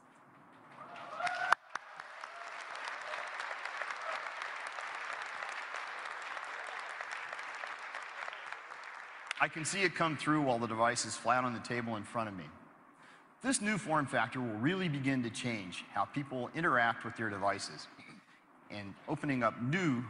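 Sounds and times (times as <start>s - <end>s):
large audience applauding: 0.7s - 9.7s.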